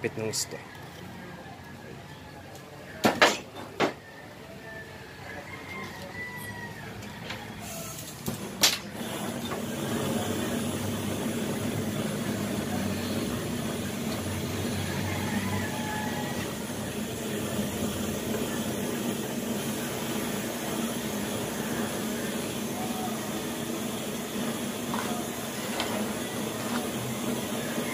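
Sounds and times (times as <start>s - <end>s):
gas flame hissing: 7.6s - 27.9s
gas igniting pop: 8.2s - 9.7s.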